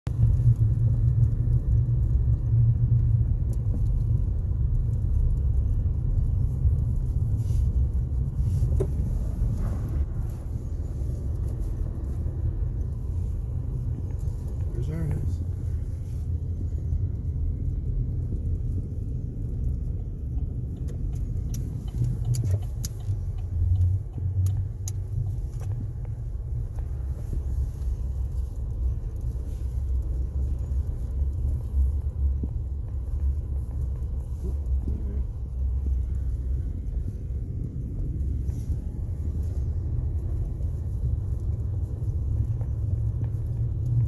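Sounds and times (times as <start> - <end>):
engine and tyres rumbling: 0.0 - 44.0
faint ticks: 19.6 - 39.6.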